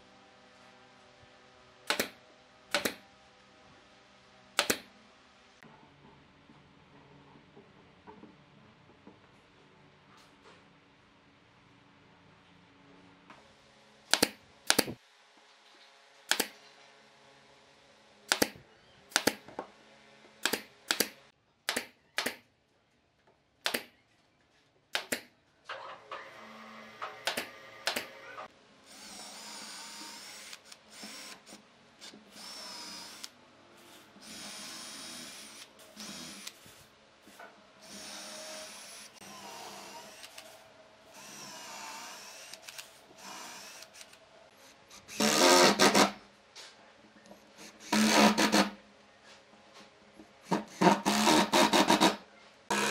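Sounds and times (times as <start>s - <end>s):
nail gun shots: 1.9s - 3.0s, 18.3s - 19.4s
cordless drill whining: 32.3s - 33.3s, 34.2s - 36.6s, 37.8s - 40.5s, 41.1s - 44.2s.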